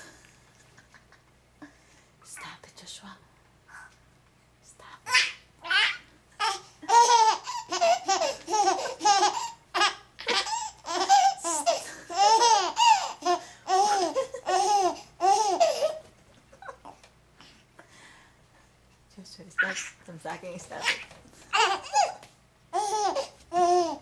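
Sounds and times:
baby laughing: 0:05.1 - 0:17.1, 0:20.8 - 0:24.0.

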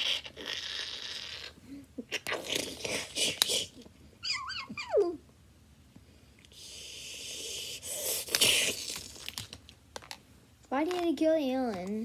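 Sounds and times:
child making creature noises: 0:00.0 - 0:05.2.

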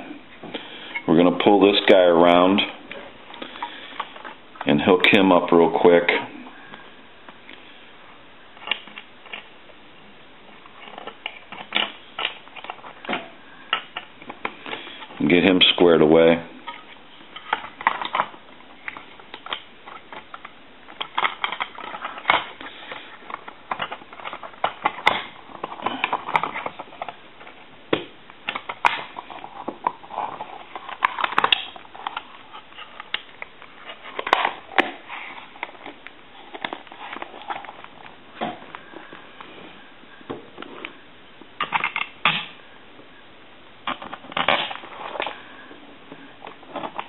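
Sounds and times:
hands handling plastic device: 0:10.5 - 0:15.8, 0:16.6 - 0:39.5, 0:43.8 - 0:47.0
rustling and scraping: 0:10.5 - 0:27.7, 0:28.5 - 0:41.0, 0:43.9 - 0:47.0.

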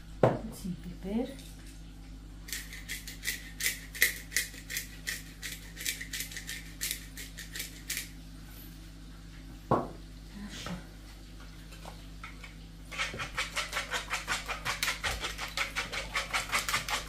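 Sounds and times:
pepper mill grinding: 0:02.5 - 0:08.2, 0:12.9 - 0:17.0
knock: 0:09.7 - 0:10.0.

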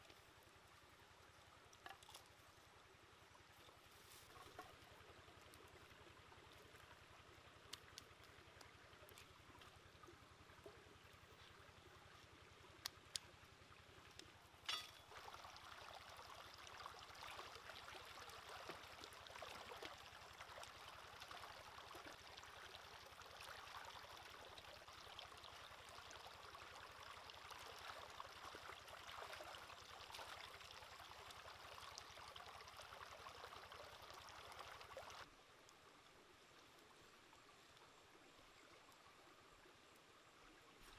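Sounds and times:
stream splashing over rocks: 0:14.5 - 0:35.3.

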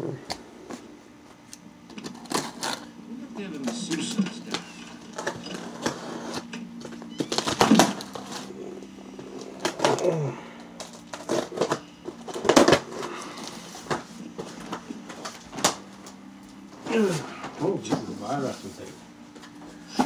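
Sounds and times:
cardboard tearing: 0:02.0 - 0:02.9.

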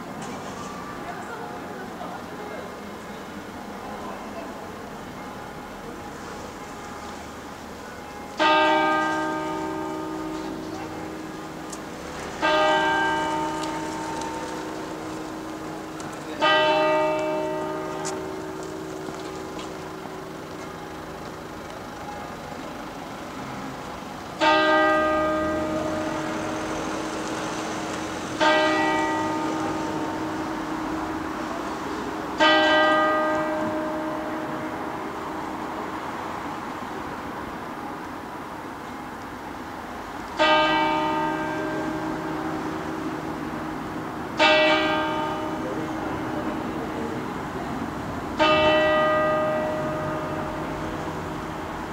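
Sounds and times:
city traffic hum: 0:00.0 - 0:51.9
church bell striking: 0:05.1 - 0:22.4, 0:24.4 - 0:35.8, 0:40.4 - 0:47.6, 0:48.4 - 0:51.9.

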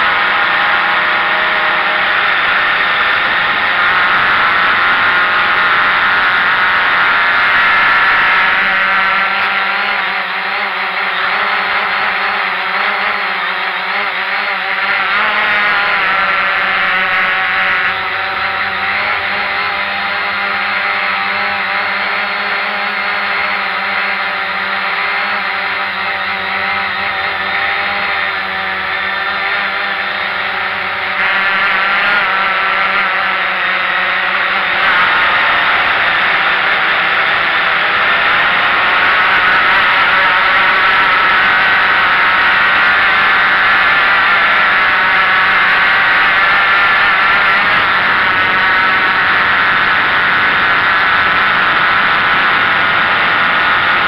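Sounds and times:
drone motors whining: 0:00.0 - 0:54.0.

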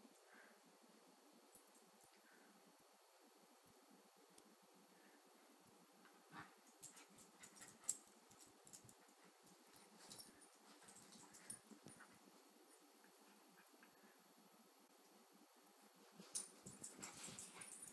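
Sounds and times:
dogs scuffling on carpet: 0:15.9 - 0:17.9.

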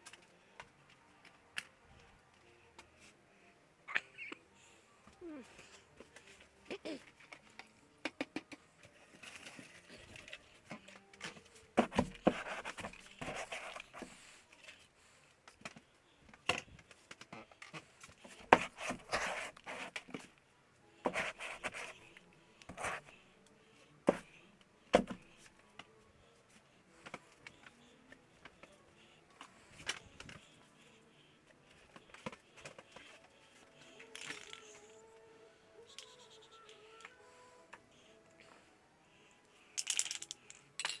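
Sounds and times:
brush scraping paint on canvas: 0:11.8 - 0:14.8, 0:17.8 - 0:20.2, 0:21.0 - 0:23.1.

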